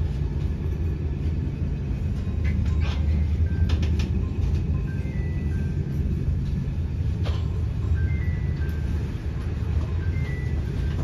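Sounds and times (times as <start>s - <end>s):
train wheels rumbling in tunnel: 0.0s - 11.0s
track clicks and rattles: 2.2s - 4.8s.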